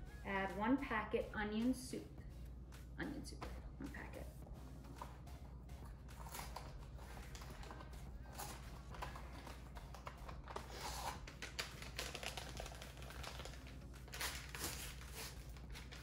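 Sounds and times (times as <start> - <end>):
packet crinkling and rustling: 6.2 - 16.0.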